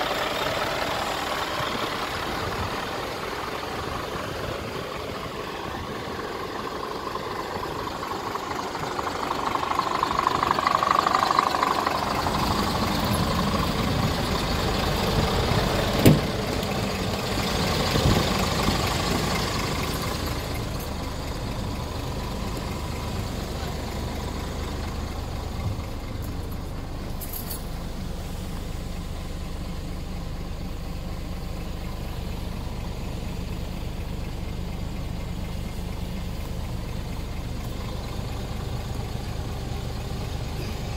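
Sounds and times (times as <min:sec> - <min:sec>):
diesel engine idling: 0:00.0 - 0:40.9
sharp thump: 0:16.0 - 0:16.4.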